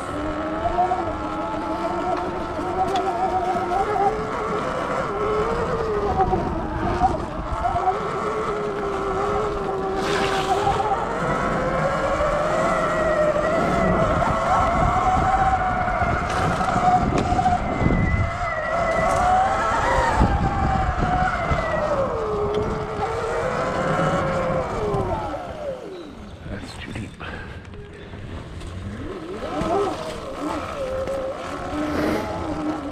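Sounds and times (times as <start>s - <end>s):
electric motor whining: 0.0s - 26.6s, 27.2s - 32.9s
low rumble with knocks: 14.0s - 18.1s.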